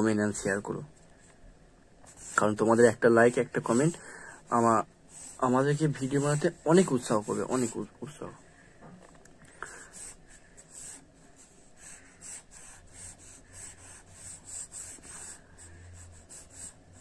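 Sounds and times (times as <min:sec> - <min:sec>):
pencil scratching on paper: 0:02.1 - 0:07.9, 0:09.7 - 0:17.0.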